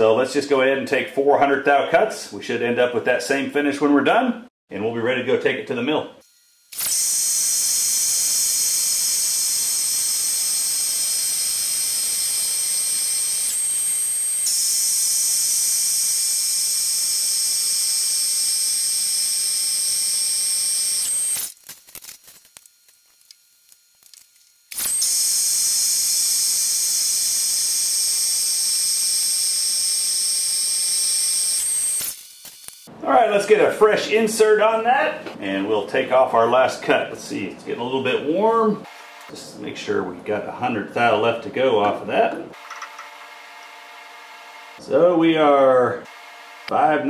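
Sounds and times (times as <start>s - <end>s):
metal lathe cutting steel: 24.7s - 28.8s.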